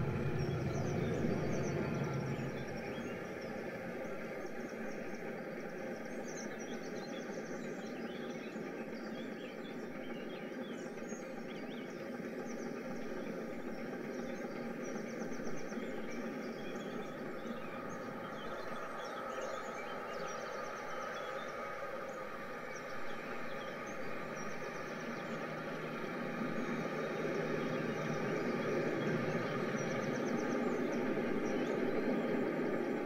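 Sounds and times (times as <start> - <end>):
steady rushing noise: 0.0 - 6.0.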